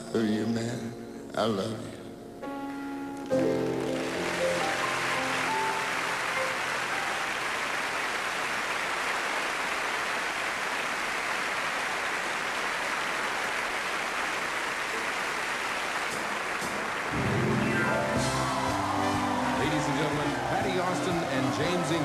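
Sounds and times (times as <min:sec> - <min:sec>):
music: 0:00.0 - 0:07.6, 0:15.9 - 0:22.0
large audience applauding: 0:03.3 - 0:22.0.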